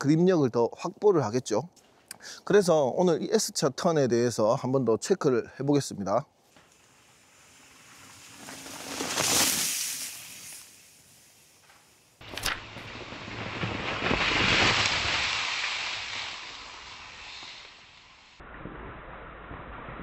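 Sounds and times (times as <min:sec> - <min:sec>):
bike tyres scrubbing through dirt: 0:06.5 - 0:18.4
sharp click: 0:11.7 - 0:12.6.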